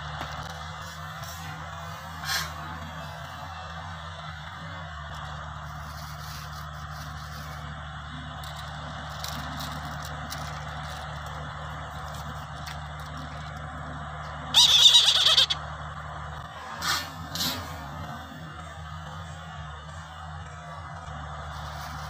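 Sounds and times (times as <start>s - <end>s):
bird hoarse whinnying scream: 14.5s - 15.6s.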